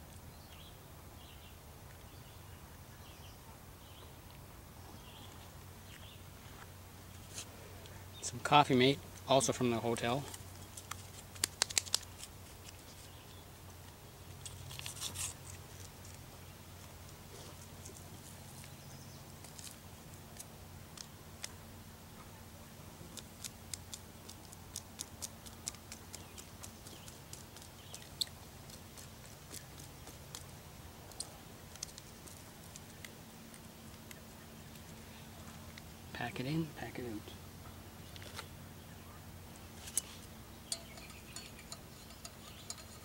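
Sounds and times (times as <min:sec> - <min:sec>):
light ticks and crinkles: 0:10.0 - 0:21.7, 0:22.9 - 0:36.0, 0:39.5 - 0:43.0.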